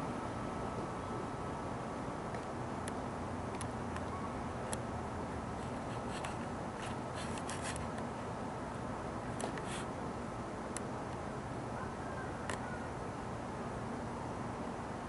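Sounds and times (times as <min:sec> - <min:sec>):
steady hiss: 0:00.0 - 0:11.8.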